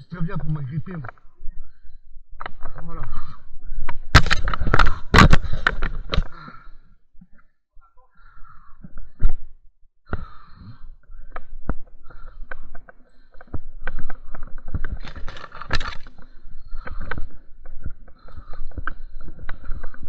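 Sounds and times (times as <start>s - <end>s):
twigs cracking and snapping: 3.9s - 6.4s, 12.2s - 20.0s.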